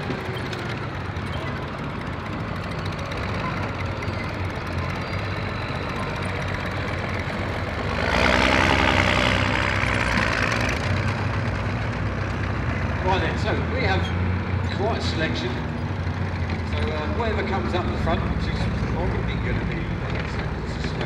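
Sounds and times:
armoured vehicles driving past: 0.0 - 21.0.

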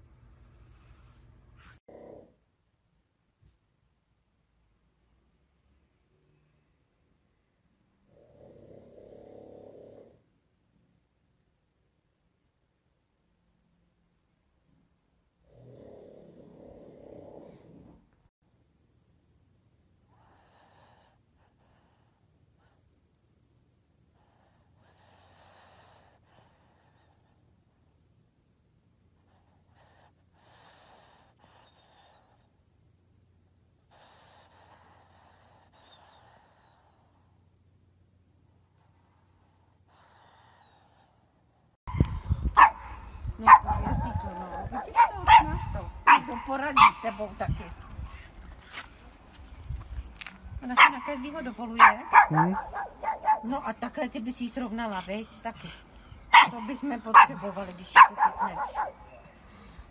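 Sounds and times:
dog snoring: 1.0 - 2.4, 8.1 - 10.3, 15.4 - 18.1
small dog barking: 41.9 - 47.4, 50.7 - 53.7, 56.3 - 59.4.

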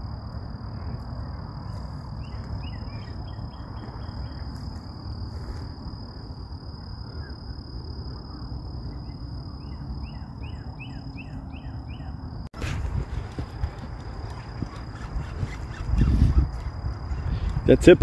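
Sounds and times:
bird calls: 0.8 - 4.8, 8.1 - 12.3, 13.2 - 17.8
wind rumble on microphone: 12.6 - 18.0.

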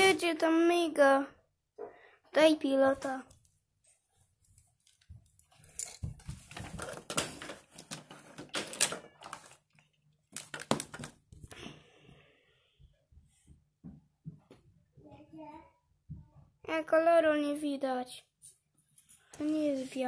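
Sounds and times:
plastic bricks clattering: 10.3 - 11.2.

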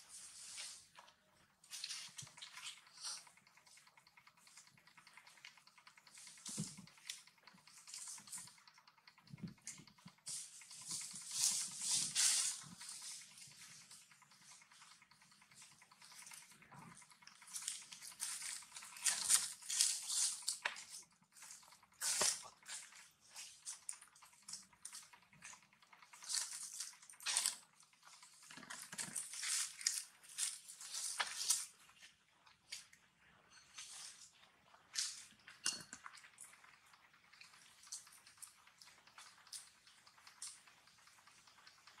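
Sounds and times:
dry leaves rustling and crackling: 11.0 - 12.6, 17.5 - 20.4.

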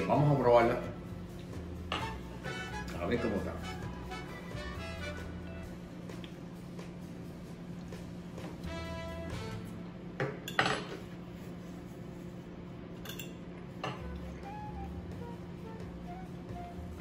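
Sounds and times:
soft background music: 0.0 - 12.3, 13.6 - 17.0
metal fork clinking on plate: 13.0 - 13.4.

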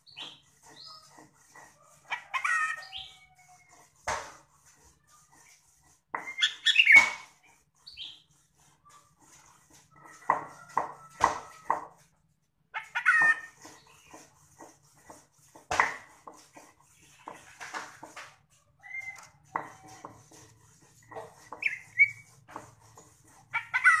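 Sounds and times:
bird chips and whistles: 6.3 - 8.3, 21.6 - 22.3.

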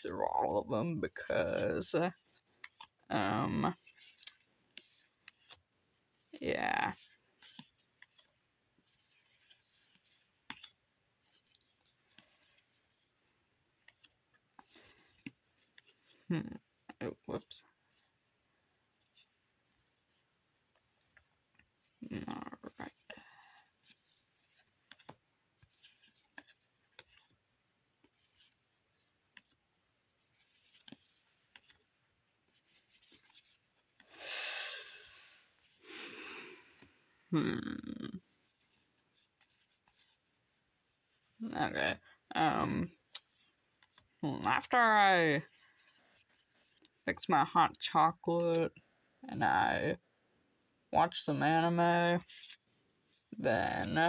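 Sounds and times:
trading cards flipping: 2.2 - 3.0, 3.7 - 5.6, 6.8 - 16.2, 21.6 - 27.4, 28.0 - 29.6, 30.2 - 36.9, 42.4 - 44.7.

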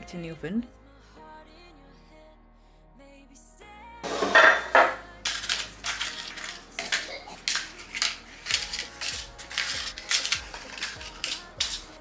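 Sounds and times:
paper cases crinkling and rustling: 5.3 - 12.0.

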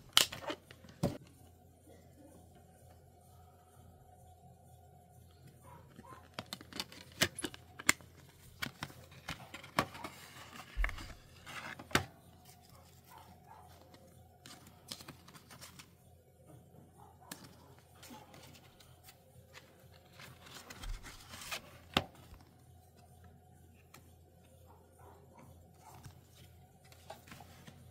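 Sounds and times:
faint steady hum: 0.0 - 27.9.

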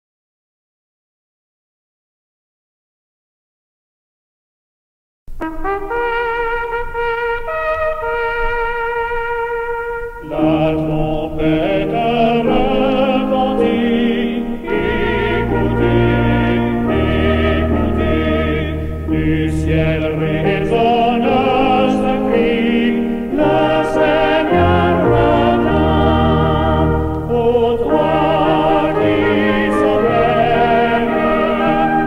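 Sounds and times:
choir singing sustained chords: 5.9 - 32.0.

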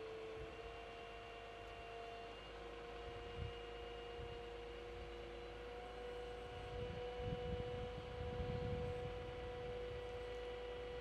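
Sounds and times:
crane engine humming: 0.0 - 11.0
wind rumble on microphone: 3.1 - 5.2, 6.0 - 11.0.

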